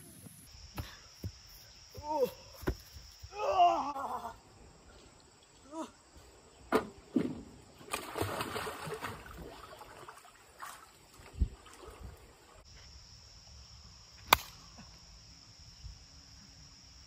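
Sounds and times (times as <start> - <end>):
water splash and sloshing: 6.7 - 12.6.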